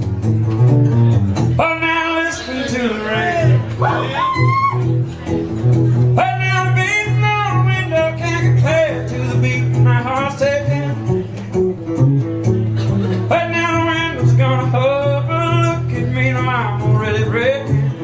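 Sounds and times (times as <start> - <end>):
acoustic guitar strumming: 0.0 - 18.0
man singing: 1.6 - 4.2, 6.2 - 11.3, 13.2 - 18.0.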